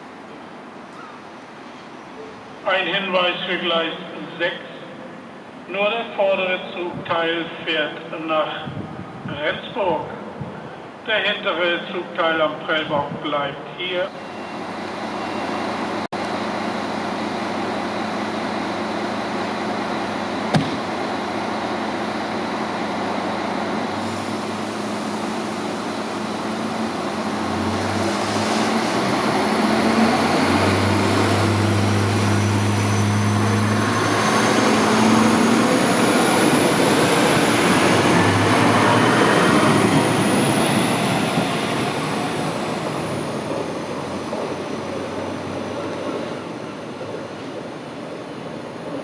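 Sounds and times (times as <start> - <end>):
diesel train engines revving: 14.1 - 49.0.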